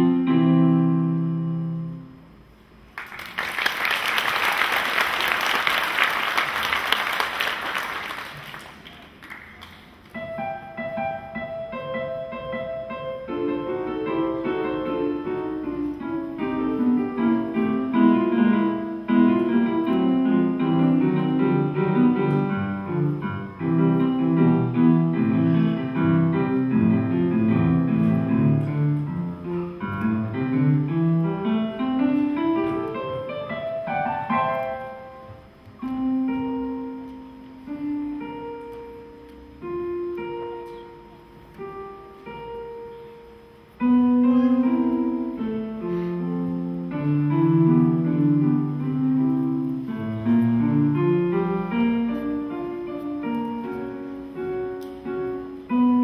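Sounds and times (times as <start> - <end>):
solo piano piece: 0.0 - 3.3, 5.8 - 56.0
audience applauding: 2.9 - 10.1.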